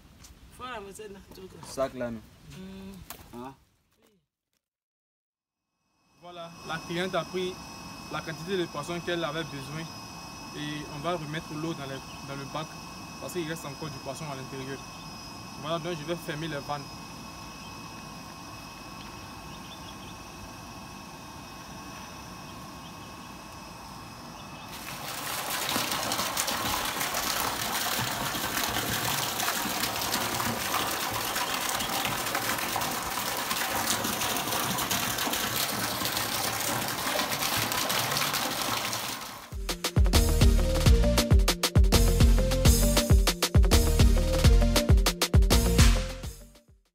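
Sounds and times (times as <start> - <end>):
water gushing into a tank: 24.7 - 39.6.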